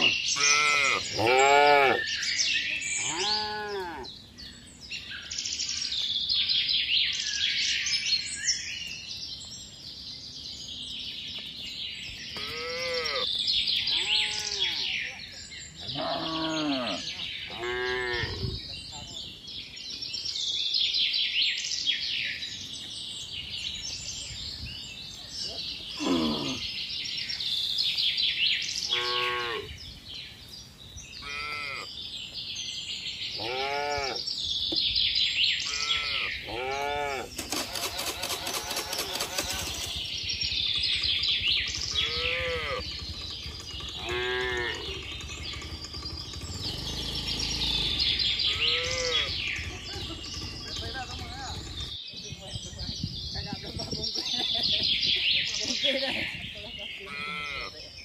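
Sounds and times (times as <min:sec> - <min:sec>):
cattle mooing: 0:00.0 - 0:02.0, 0:03.0 - 0:04.1, 0:12.4 - 0:13.3, 0:13.9 - 0:15.0, 0:15.9 - 0:18.5, 0:28.9 - 0:29.7, 0:33.4 - 0:34.2, 0:35.7 - 0:37.4, 0:41.9 - 0:42.9, 0:44.0 - 0:45.1, 0:46.4 - 0:49.4, 0:57.1 - 0:57.7
birds chirping: 0:00.0 - 0:58.0.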